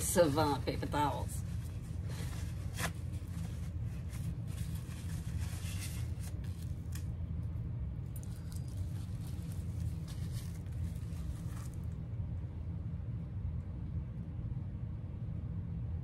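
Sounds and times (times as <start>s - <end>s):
faint rustling and handling: 0.0s - 7.2s, 8.1s - 12.1s
steady low hum: 0.0s - 16.0s.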